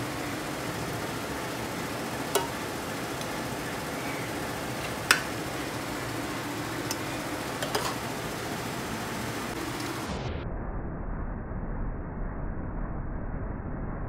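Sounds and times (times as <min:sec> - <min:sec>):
steady background hiss: 0:00.0 - 0:10.3
metal spoon clinking on pots: 0:07.6 - 0:08.0.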